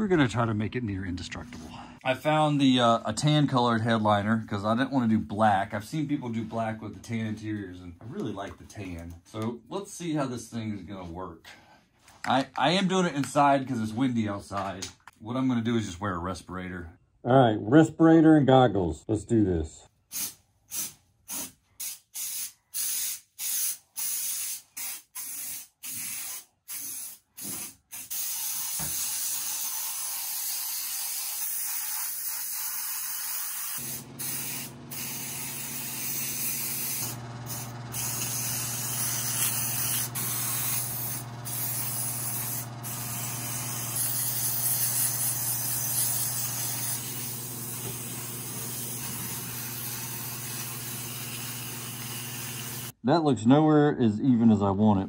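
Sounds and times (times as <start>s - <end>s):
aerosol can spraying: 20.1s - 53.0s.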